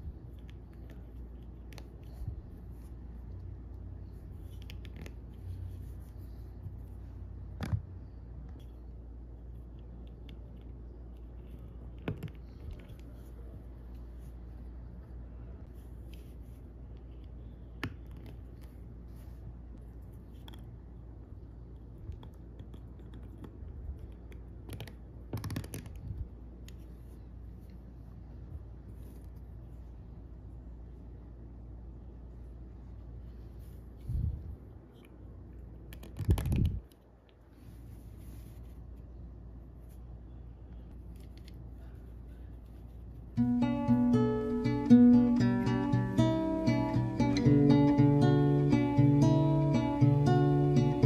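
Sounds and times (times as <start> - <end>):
steady low hum: 0.0 - 25.3, 36.6 - 51.0.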